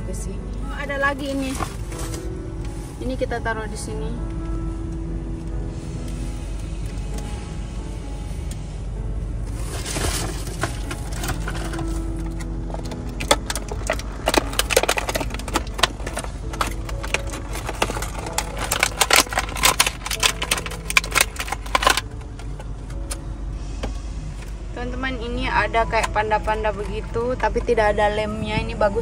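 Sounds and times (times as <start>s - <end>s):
plastic bag crinkling: 9.5s - 23.1s.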